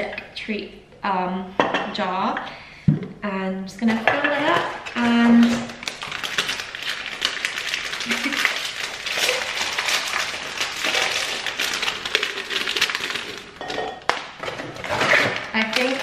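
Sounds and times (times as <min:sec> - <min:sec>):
plastic bag crinkling: 0:04.3 - 0:16.0.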